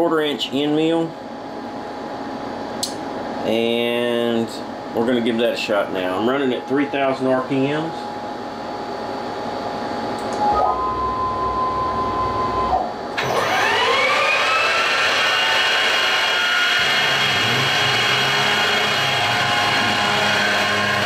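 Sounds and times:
cnc mill table motor whine: 5.9s - 21.0s
spindle whining: 10.3s - 21.0s
end mill cutting panel: 13.2s - 21.0s.

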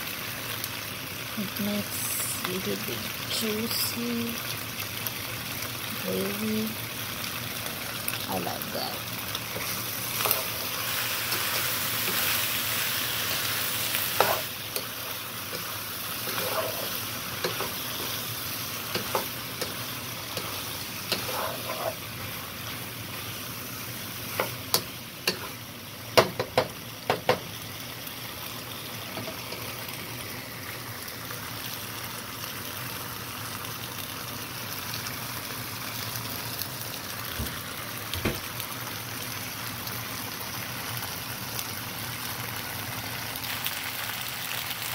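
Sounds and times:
sauce sizzling in a frying pan: 0.0s - 44.9s
spoon knocking on pan: 26.2s - 27.4s.

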